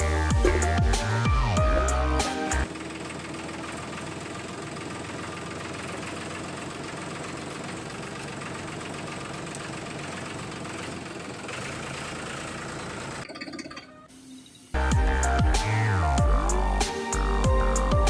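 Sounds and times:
toy tractor engine rumble: 0:02.6 - 0:14.1.

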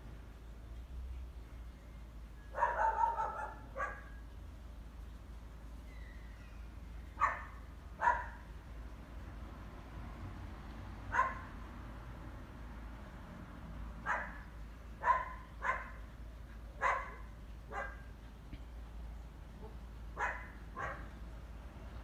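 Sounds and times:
dog barking: 0:02.6 - 0:04.1, 0:07.2 - 0:08.4, 0:11.1 - 0:11.5, 0:14.0 - 0:16.0, 0:16.8 - 0:18.1, 0:19.6 - 0:21.2.

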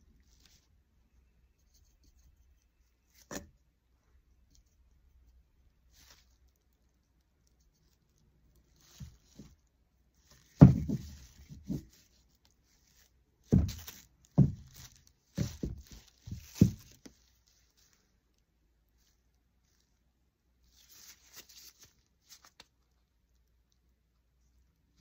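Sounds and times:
plastic rustling: 0:07.7 - 0:18.1, 0:20.7 - 0:22.7.

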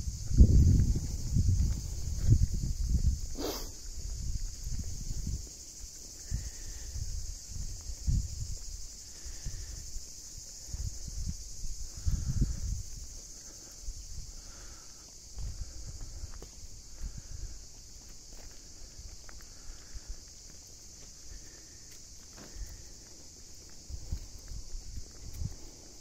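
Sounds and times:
insects shrilling: 0:00.0 - 0:26.0
footsteps on road: 0:00.5 - 0:03.2, 0:03.8 - 0:06.6, 0:12.7 - 0:26.0.

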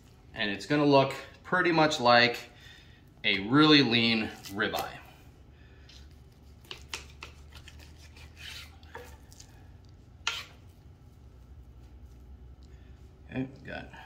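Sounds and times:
knife slicing meat on board: 0:10.2 - 0:10.6.

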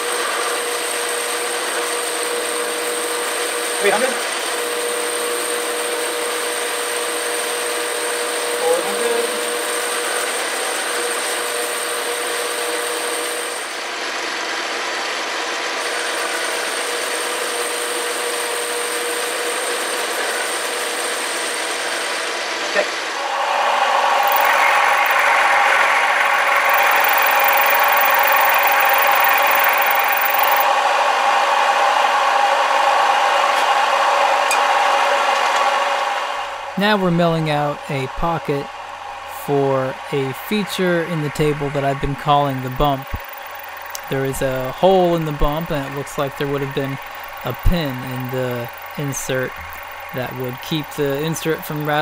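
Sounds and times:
milling machine whining: 0:23.2 - 0:30.7, 0:36.8 - 0:52.0
metal lathe cutting: 0:23.5 - 0:30.6.

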